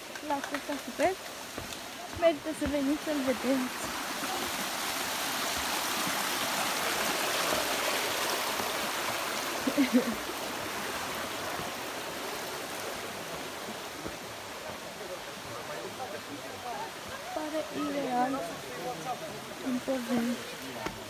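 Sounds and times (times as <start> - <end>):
mountain stream rushing: 0.0 - 21.0.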